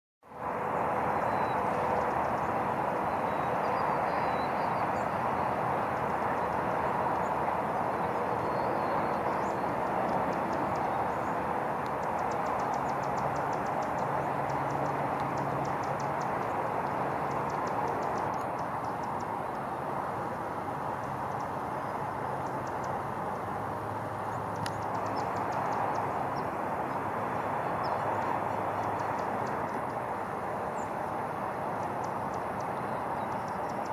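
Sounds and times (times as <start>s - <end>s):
outdoor background rush: 0.2s - 33.9s
faint high ticks: 9.1s - 11.2s, 11.8s - 19.7s, 24.5s - 27.0s, 31.8s - 33.9s.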